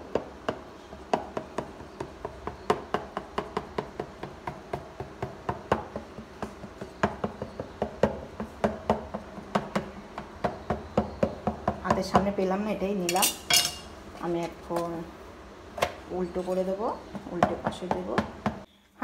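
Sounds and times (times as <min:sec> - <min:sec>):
knife tapping through dough: 0:00.1 - 0:12.3.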